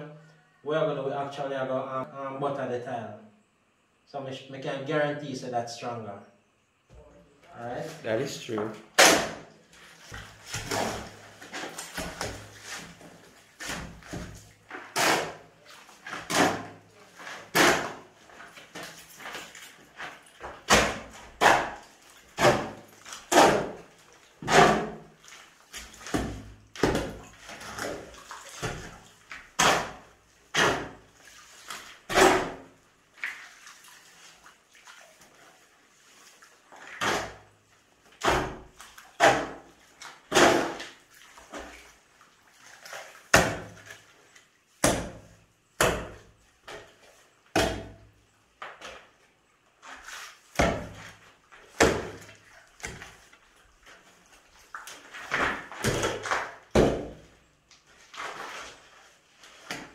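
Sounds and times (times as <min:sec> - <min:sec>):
shovel scraping on concrete: 0:09.8 - 0:18.1.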